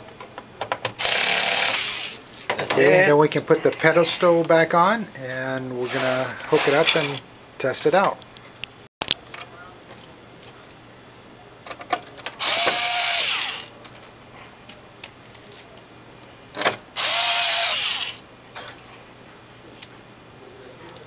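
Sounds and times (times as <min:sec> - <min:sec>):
electric screwdriver motor whine: 0:12.4 - 0:13.7, 0:17.0 - 0:18.2.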